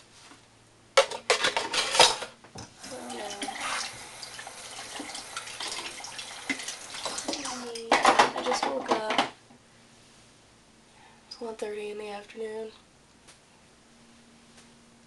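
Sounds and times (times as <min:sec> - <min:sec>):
dishes and cutlery clattering: 0:01.0 - 0:02.3
tap running: 0:02.6 - 0:08.3.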